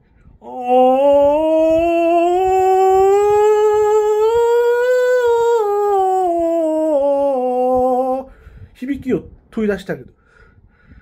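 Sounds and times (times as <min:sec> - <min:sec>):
man singing sustained vowel: 0:00.4 - 0:08.3.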